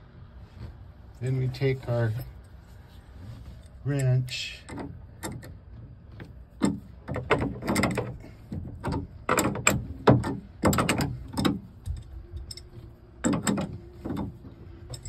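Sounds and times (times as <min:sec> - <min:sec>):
wrench clanking on metal plug: 0:06.6 - 0:15.0.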